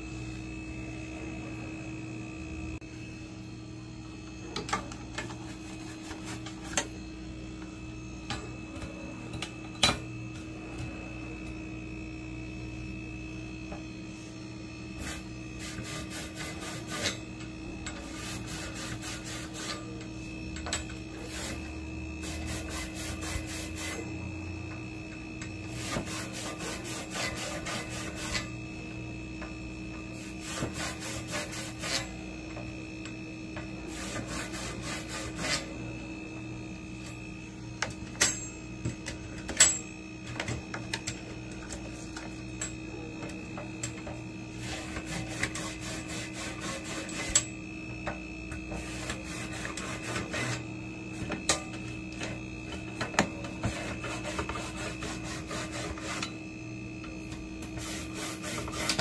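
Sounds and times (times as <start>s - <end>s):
steady hum: 0.0s - 59.0s
brush scrubbing coils: 5.1s - 6.9s, 15.0s - 24.3s, 25.6s - 28.6s, 30.1s - 32.2s, 33.8s - 35.8s, 43.9s - 47.5s, 48.7s - 56.4s, 57.6s - 59.0s.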